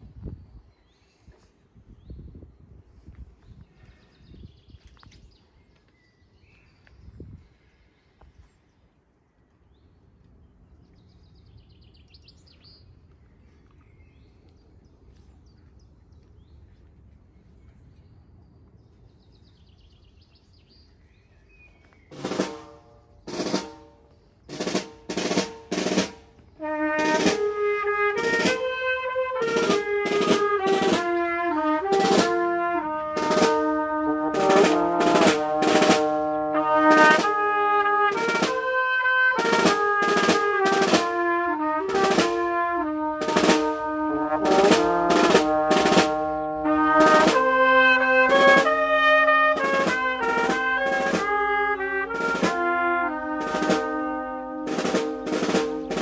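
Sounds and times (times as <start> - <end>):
snare drum: 22.1 - 56.0
wind band playing: 22.1 - 56.0.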